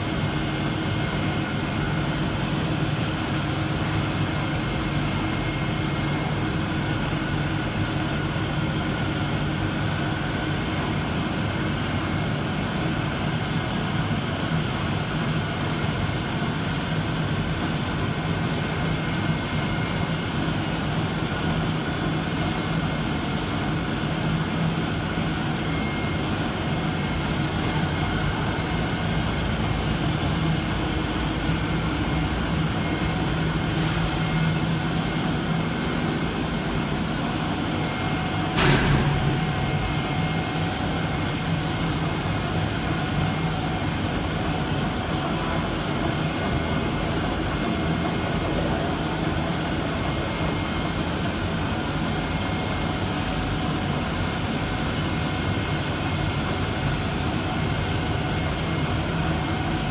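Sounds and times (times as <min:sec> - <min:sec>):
printing press running: 0:00.0 - 0:59.9
sharp knock: 0:38.6 - 0:39.4.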